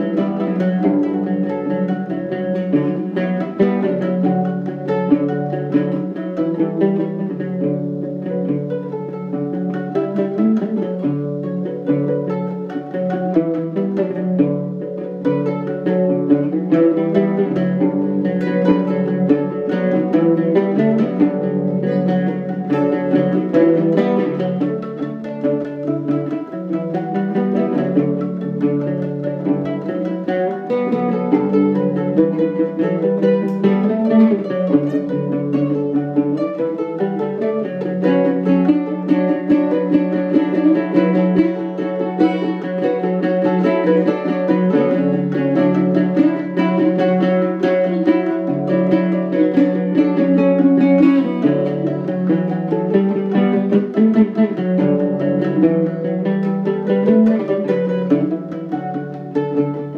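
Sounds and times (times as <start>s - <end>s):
plucked string duet: 0.0s - 59.9s.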